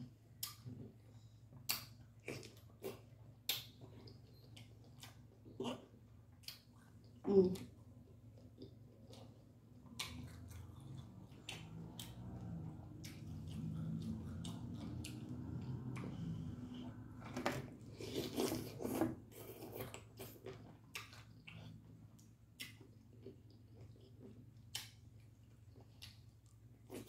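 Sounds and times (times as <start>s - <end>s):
person chewing with lip smacks: 8.4s - 16.2s, 18.2s - 25.0s.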